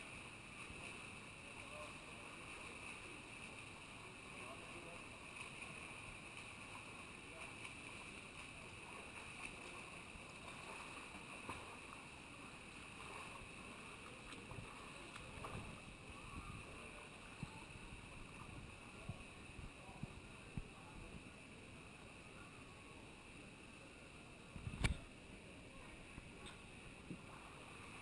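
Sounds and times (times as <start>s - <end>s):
small sharp splashes: 5.3s - 12.0s.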